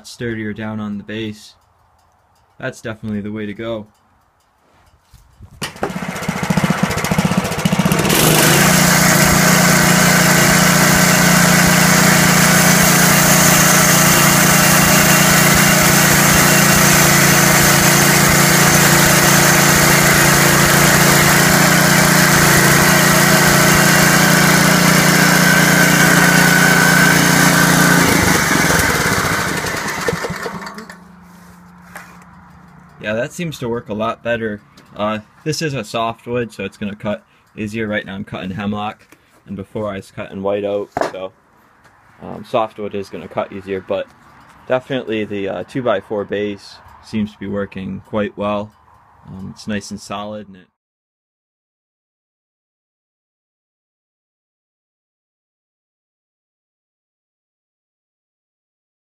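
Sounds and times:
band blade cutting log: 5.6s - 31.1s
sawmill engine running: 5.6s - 31.2s.

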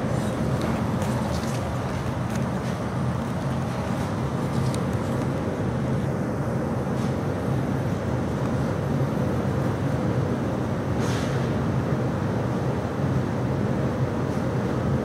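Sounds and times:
low droning hum: 0.0s - 10.8s.

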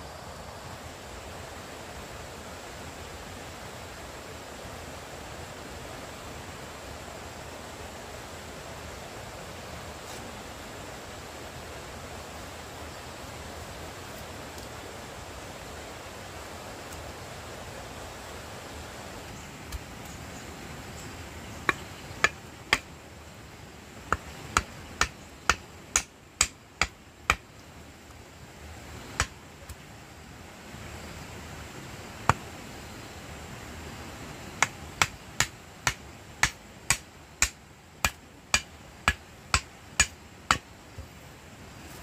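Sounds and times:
stake hammered into ground: 21.6s - 22.9s, 24.1s - 27.4s, 29.2s - 29.4s, 34.6s - 40.7s.

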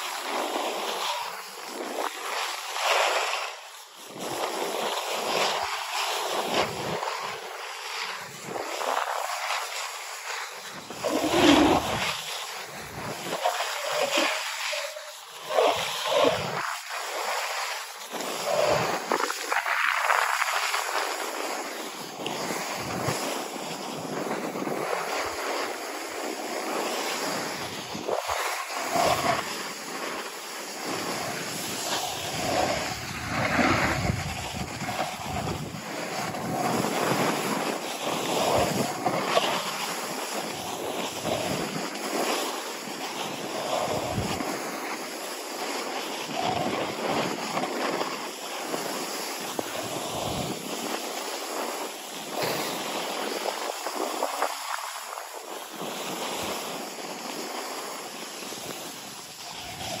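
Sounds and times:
skis scraping over snow: 0.0s - 60.0s
wind buffeting microphone: 10.7s - 16.7s, 26.4s - 42.2s, 43.4s - 45.0s, 45.6s - 57.8s, 58.4s - 60.0s.

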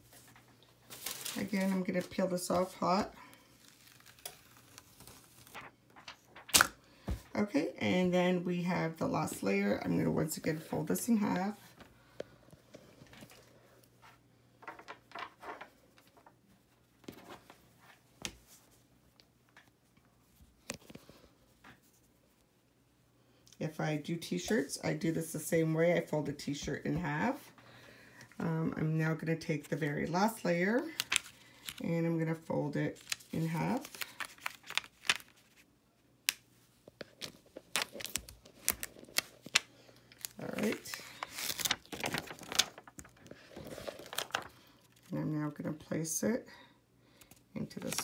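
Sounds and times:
plastic sheet crinkling: 0.0s - 7.4s, 29.6s - 35.7s, 37.0s - 45.1s.

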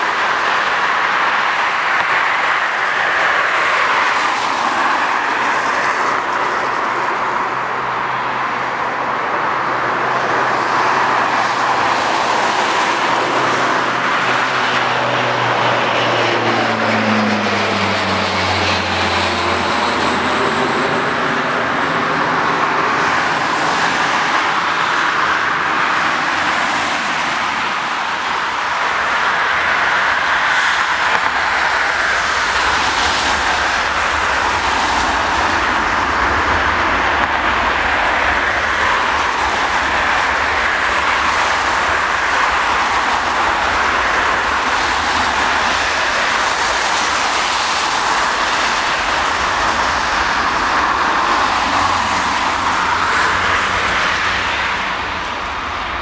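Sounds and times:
jet engines spooling up: 0.0s - 56.0s
jet engines whining: 0.0s - 56.0s.

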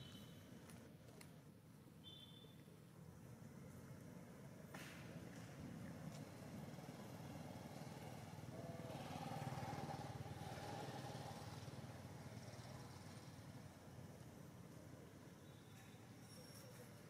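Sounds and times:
motor vehicle engine hum: 3.2s - 15.4s.

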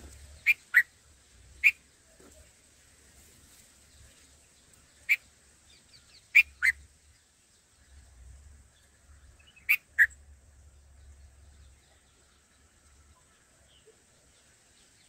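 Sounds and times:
bird calling: 0.0s - 0.9s, 1.6s - 1.8s, 6.3s - 6.8s, 9.4s - 10.2s.

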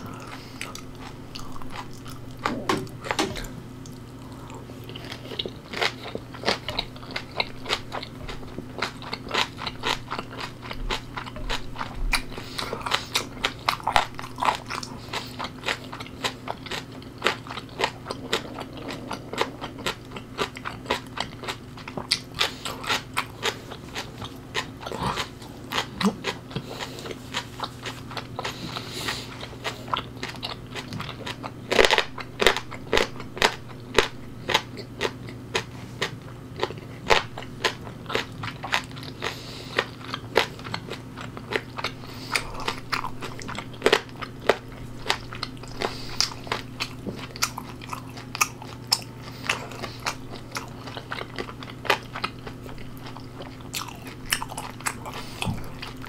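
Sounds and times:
crunchy chewing: 0.0s - 56.0s.

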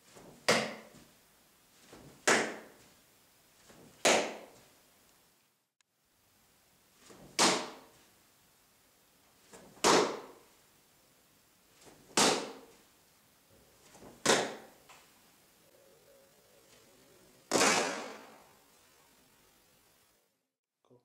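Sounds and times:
leg kick swishing and snapping: 1.8s - 2.9s, 7.0s - 7.9s, 9.5s - 10.4s, 11.8s - 12.8s, 13.8s - 14.8s, 17.5s - 18.4s.

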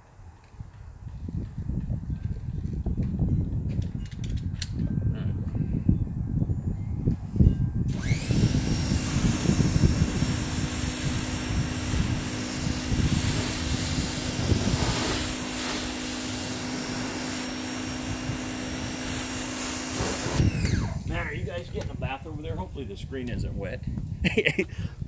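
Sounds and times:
wind buffeting microphone: 0.0s - 25.0s
pump motor hum: 7.9s - 21.2s
pressure washer spray hissing: 7.9s - 21.3s.

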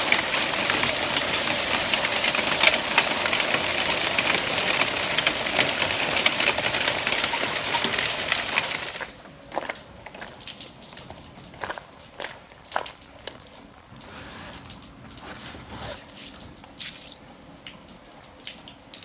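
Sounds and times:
hail clattering on ground: 0.0s - 13.7s.

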